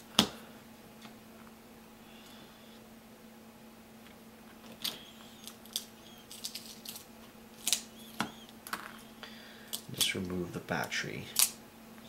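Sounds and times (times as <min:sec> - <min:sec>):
faint steady hum: 0:00.0 - 0:12.0
squeaky crackles of adhesive: 0:04.7 - 0:07.0, 0:07.6 - 0:09.2.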